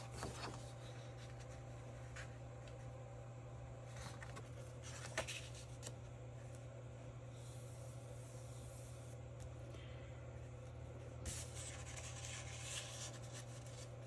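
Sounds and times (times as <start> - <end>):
steady low hum: 0.0 - 14.0
rubbing and scratching on paper: 11.3 - 14.0.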